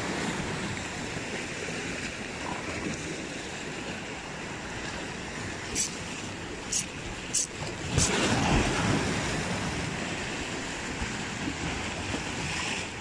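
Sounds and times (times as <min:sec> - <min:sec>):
waves against rock breakwater: 0:00.0 - 0:13.0.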